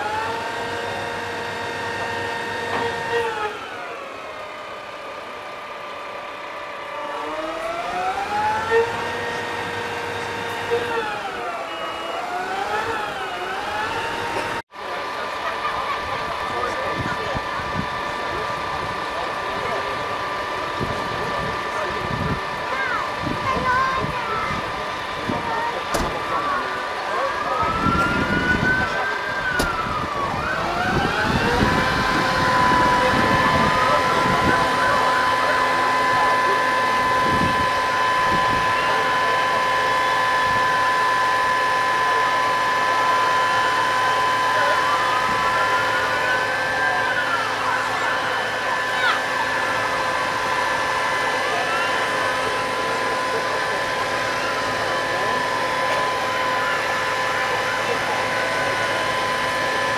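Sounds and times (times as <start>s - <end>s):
crowd chatter: 0.0s - 59.9s
emergency vehicle siren wailing: 0.0s - 59.9s
hydraulics whining: 0.0s - 59.9s
truck engine running: 0.0s - 59.9s.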